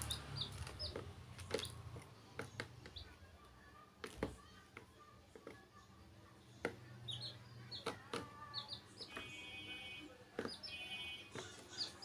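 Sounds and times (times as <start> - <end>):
chicks peeping: 0.0 - 3.2, 6.6 - 12.0.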